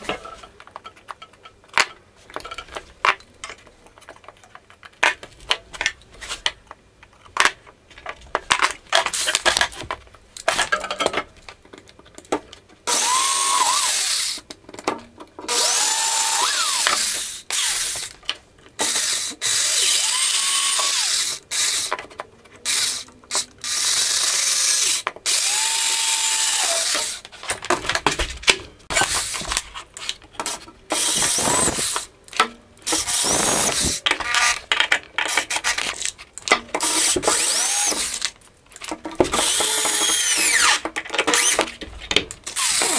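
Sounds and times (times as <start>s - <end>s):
cordless drill whining: 12.9s - 14.4s, 15.5s - 18.1s, 18.9s - 21.9s, 23.6s - 27.2s, 31.0s - 32.0s, 32.9s - 34.0s, 37.0s - 38.2s, 39.4s - 40.8s, 42.6s - 42.9s.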